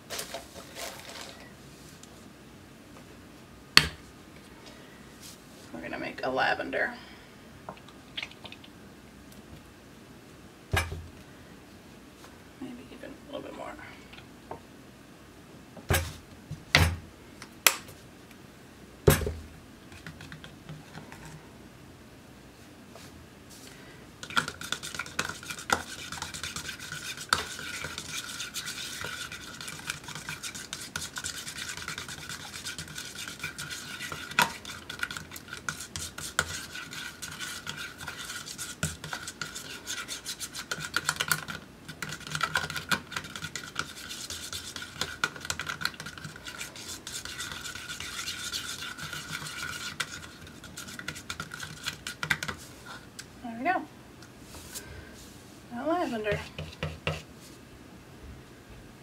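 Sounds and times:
palette knife scraping paint: 24.2s - 52.6s.

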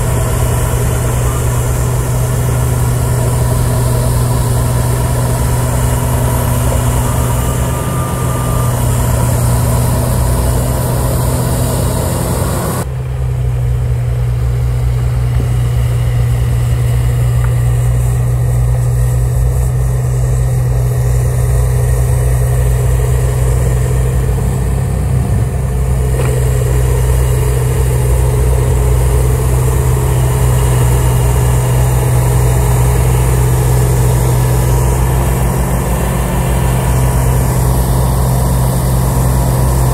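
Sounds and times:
diesel engine running under load: 0.0s - 39.9s
snowblower cutting through snow: 0.0s - 39.9s.

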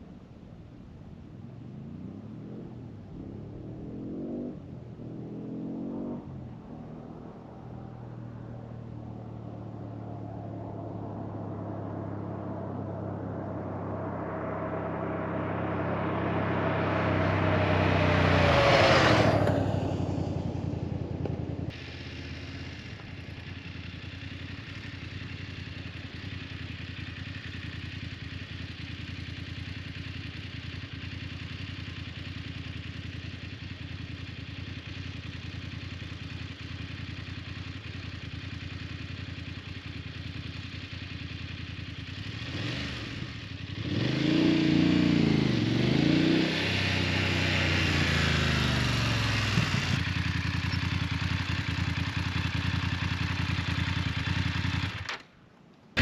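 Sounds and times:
motorcycle passing by: 1.6s - 55.2s
motorcycle engine revving: 1.8s - 55.2s
motorcycle engine idling: 19.5s - 44.1s, 47.4s - 55.4s.

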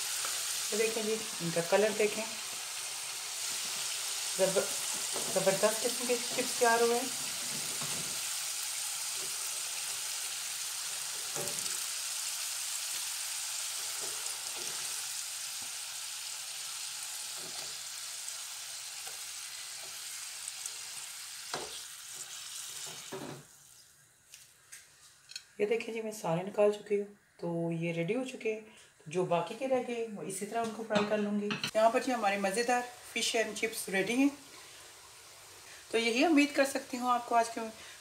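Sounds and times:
chips sizzling in hot oil: 0.0s - 23.9s, 32.0s - 38.0s.

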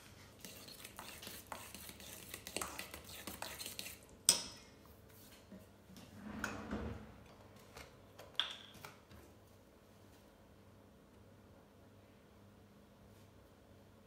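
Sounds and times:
spoon scraping in metal bowl: 0.4s - 4.4s.

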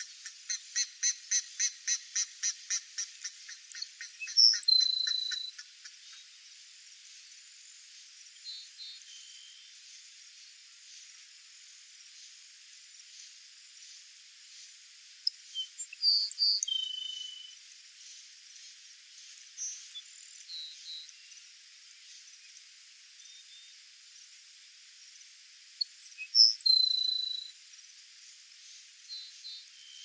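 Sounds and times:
sparrow singing: 0.0s - 6.3s, 15.3s - 17.5s, 26.0s - 27.5s.

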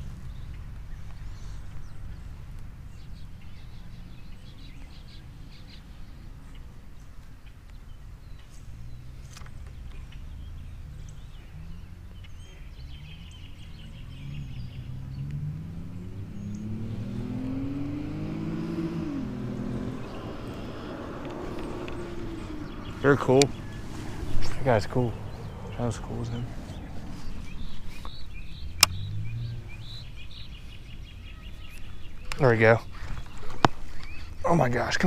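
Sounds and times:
motor vehicle engine passing: 8.4s - 35.0s
steady low rumble: 13.6s - 32.3s
faint bird chirps: 15.9s - 35.0s.

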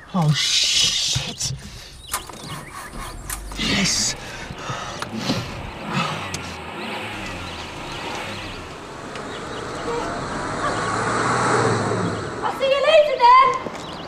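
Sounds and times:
car engine pulling away: 1.6s - 12.6s.

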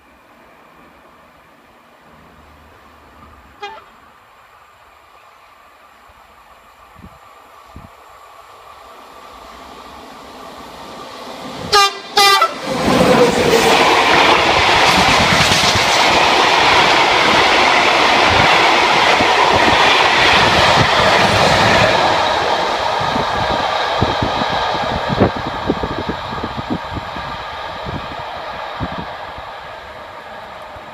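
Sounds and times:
freight train rumbling past: 0.0s - 30.9s
locomotive horn blasts: 3.6s - 4.0s, 11.7s - 12.6s.

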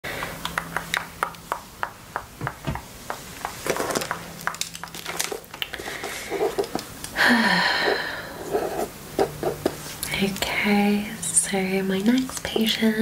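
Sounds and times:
handling noise: 2.3s - 7.1s.

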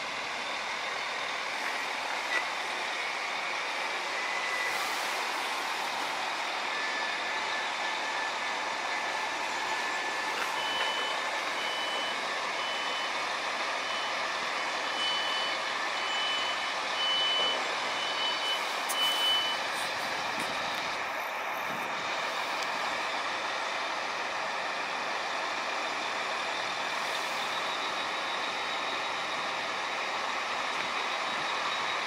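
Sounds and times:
short high door warning beeps: 10.4s - 13.2s, 14.8s - 20.0s.

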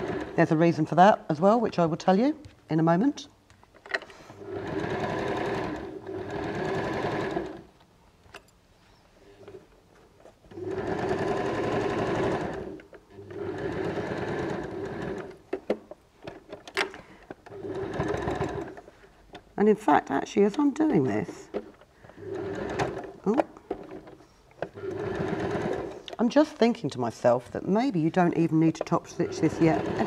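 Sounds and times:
sewing machine stitching: 0.0s - 0.6s, 4.4s - 7.7s, 10.5s - 15.7s, 17.4s - 18.8s, 21.5s - 26.2s, 29.0s - 30.0s.

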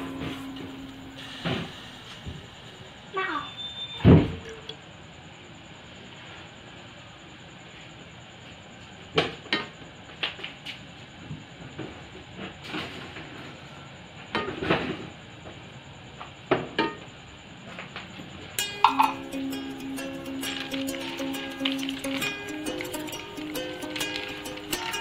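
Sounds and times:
steady low hiss: 0.0s - 3.2s, 18.5s - 25.0s
metal pots and utensils clinking: 18.6s - 25.0s.

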